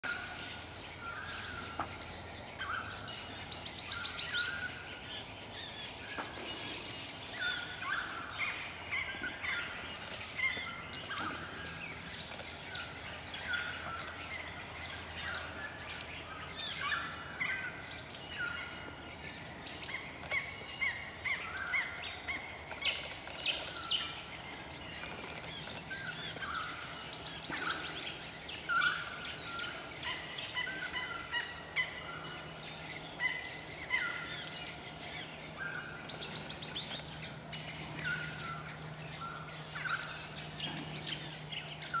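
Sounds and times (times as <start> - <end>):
flock of parrots chirping: 0.0 - 42.0.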